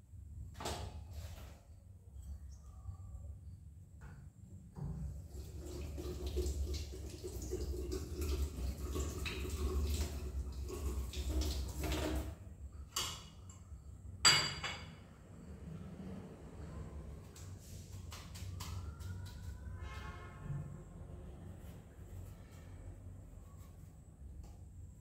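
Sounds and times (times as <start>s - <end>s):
tap water running into sink: 5.0s - 12.4s
dishes clinking: 12.9s - 13.6s, 14.2s - 15.1s
kitchenware clattering: 12.9s - 13.6s, 14.2s - 15.0s.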